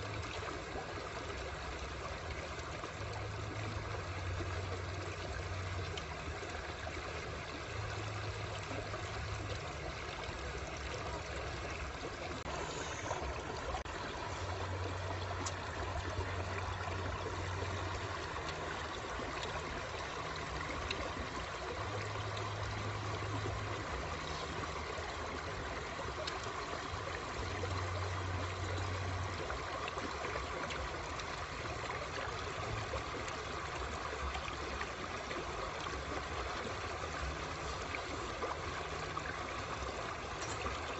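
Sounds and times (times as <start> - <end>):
low hum: 0.0 - 40.9
stream running over rocks: 0.0 - 40.9.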